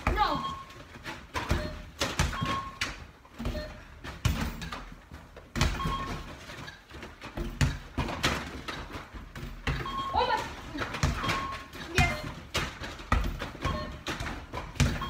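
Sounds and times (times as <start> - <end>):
short beeps: 0.2 - 0.8, 1.4 - 2.8, 9.8 - 10.6, 13.6 - 14.0
balls thudding against backboard: 3.4 - 15.0.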